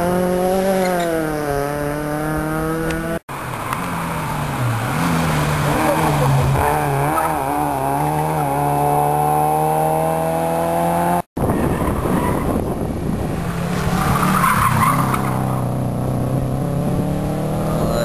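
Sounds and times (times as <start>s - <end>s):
rally car accelerating: 0.0s - 18.0s
rally car engine and tyre noise: 0.0s - 18.0s.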